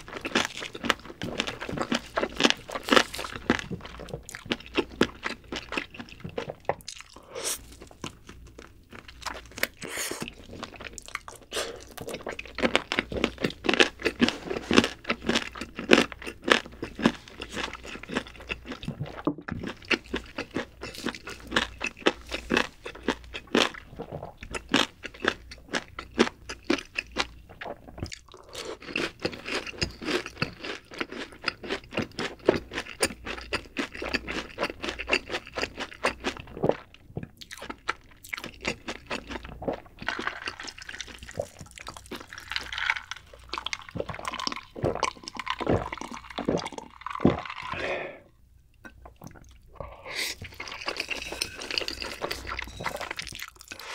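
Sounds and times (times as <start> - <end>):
crunchy chewing: 0.0 - 47.9.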